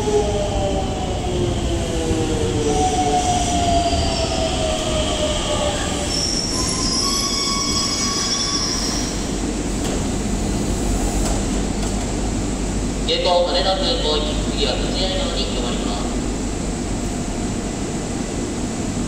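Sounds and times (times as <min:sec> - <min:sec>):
high brake squeal: 0:06.0 - 0:09.3.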